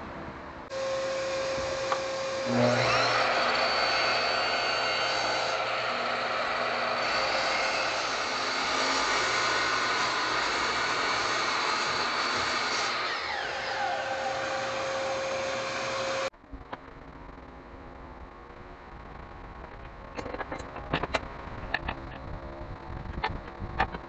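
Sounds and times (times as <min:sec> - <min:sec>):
saw motor whining: 0:00.7 - 0:16.3.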